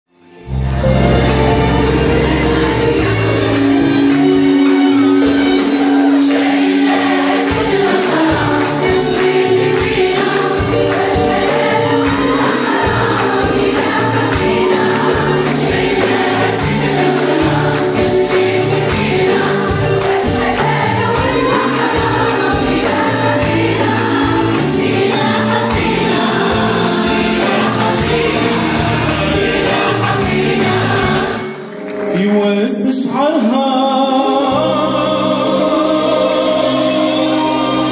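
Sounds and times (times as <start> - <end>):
orchestra with violins and oud: 0.4 - 9.4
mixed choir singing: 0.4 - 32.0, 33.4 - 37.9
steady percussion beat: 0.7 - 31.7.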